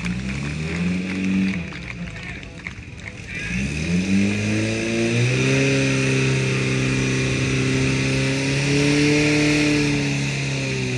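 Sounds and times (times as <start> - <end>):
pump engine revving: 3.4 - 10.9.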